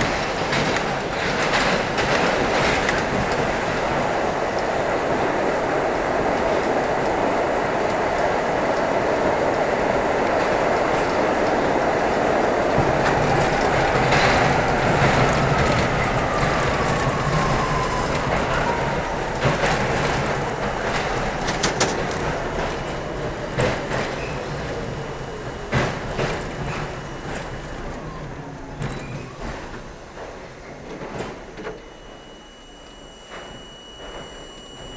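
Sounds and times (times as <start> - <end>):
train wheels rumbling on rail: 0.0 - 32.6.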